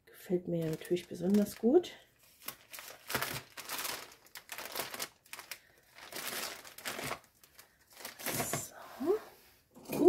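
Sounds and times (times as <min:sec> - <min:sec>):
plastic bag crinkling: 0:00.6 - 0:08.7.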